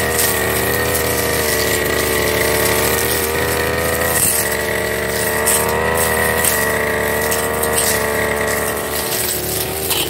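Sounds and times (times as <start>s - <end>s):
brush cutter cutting grass: 0.0s - 10.0s.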